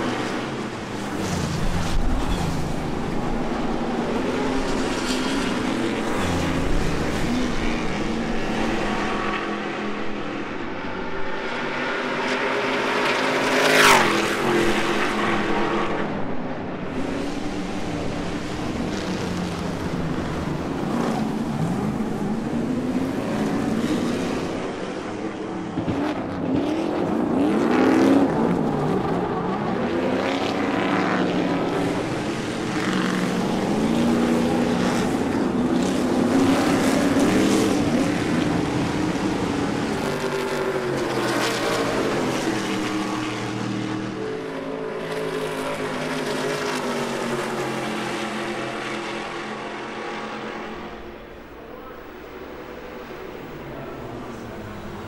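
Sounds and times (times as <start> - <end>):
race truck engines revving: 0.0 - 55.0.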